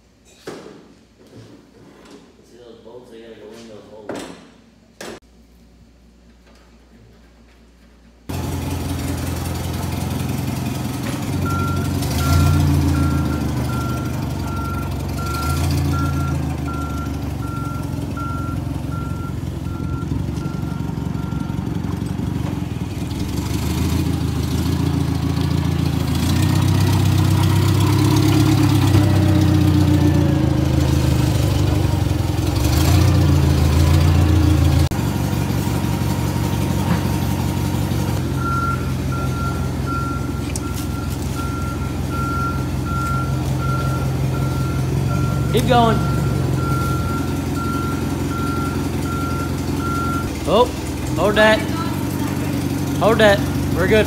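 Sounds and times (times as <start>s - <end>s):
forklift engine revving: 8.3s - 54.0s
warning beeper: 38.4s - 52.0s.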